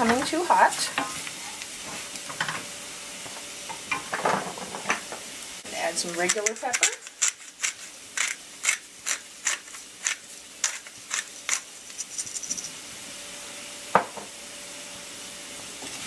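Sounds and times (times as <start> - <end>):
pepper mill grinding clicks: 6.3 - 12.6.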